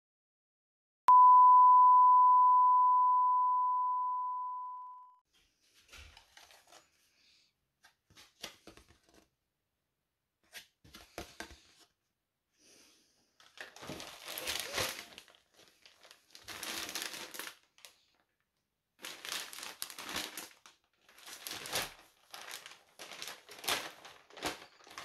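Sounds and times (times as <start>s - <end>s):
pure ding: 1.1s - 5.1s
plastic bag and paper crinkling: 5.7s - 7.0s, 13.4s - 18.2s, 19.0s - 25.0s.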